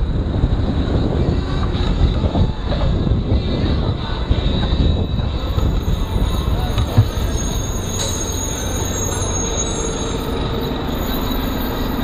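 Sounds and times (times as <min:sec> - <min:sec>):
wind noise on microphone: 0:00.0 - 0:08.9
faint high squealing tones: 0:05.1 - 0:12.0.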